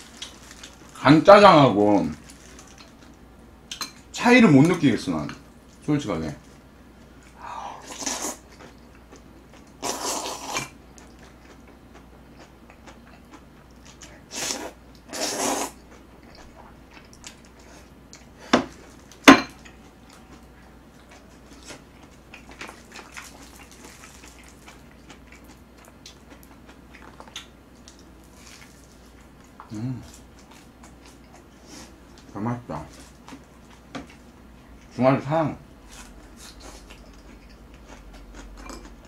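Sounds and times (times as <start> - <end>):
faint chewing: 7.2 - 32.3, 35.8 - 39.0.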